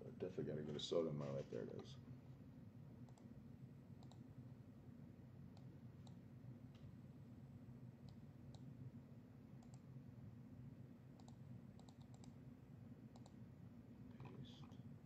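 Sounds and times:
low room hum: 0:00.0 - 0:15.0
computer mouse clicks: 0:03.0 - 0:03.3, 0:04.0 - 0:04.3, 0:05.5 - 0:06.2, 0:08.0 - 0:08.7, 0:09.6 - 0:09.9, 0:11.2 - 0:12.4, 0:13.1 - 0:13.4.

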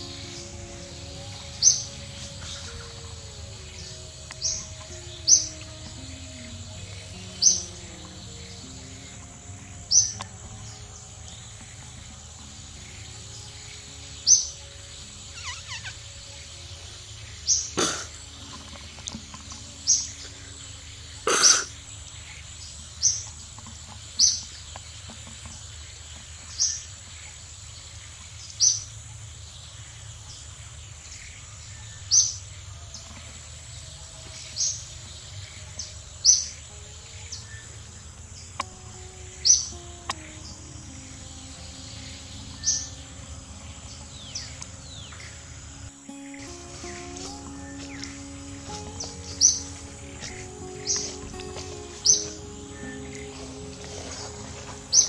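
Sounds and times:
bird chirping: 0:00.0 - 0:55.0
outdoor background noise: 0:00.0 - 0:55.0.

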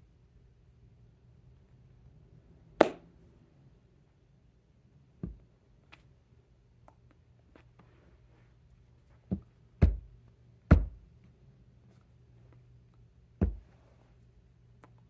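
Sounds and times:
faint low hum: 0:00.0 - 0:15.0
dull thumps of hands: 0:09.3 - 0:10.1, 0:10.7 - 0:11.0, 0:13.4 - 0:13.7.

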